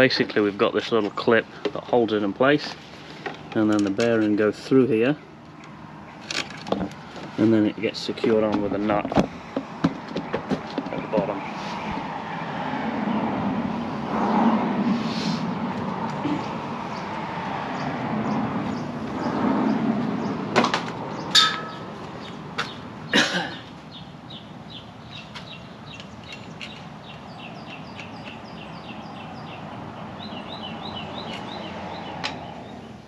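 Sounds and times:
bird chirping: 21.1s - 33.0s.

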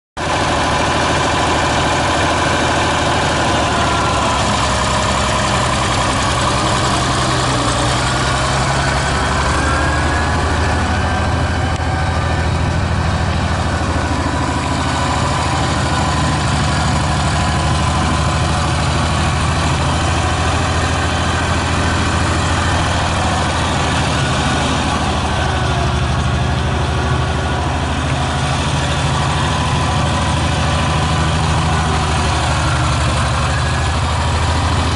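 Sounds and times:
tractor engine running: 0.2s - 34.9s.

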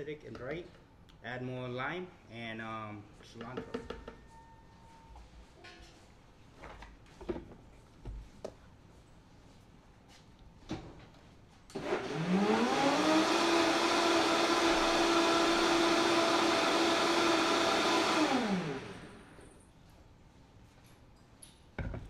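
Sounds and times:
blender motor running: 11.7s - 19.4s.

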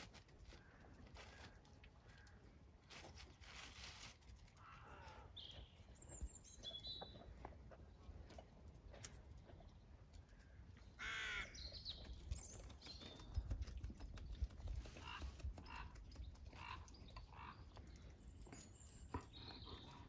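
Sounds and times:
crow cawing: 4.6s - 5.3s, 11.0s - 11.6s.

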